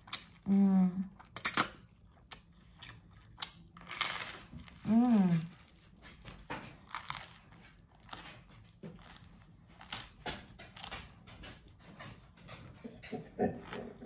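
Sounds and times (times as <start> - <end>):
chewing crunches: 1.2 - 11.6.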